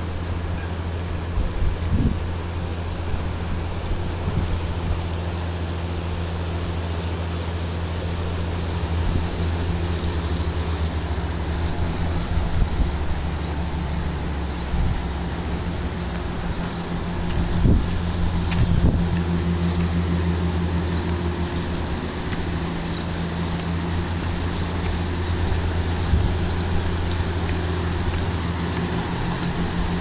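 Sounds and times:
river flowing over rocks: 0.0s - 30.0s
low rumble: 7.8s - 30.0s.

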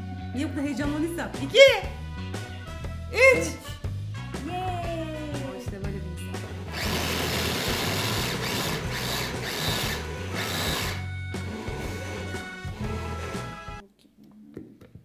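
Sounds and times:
blender and food chopper motors: 6.3s - 13.8s.

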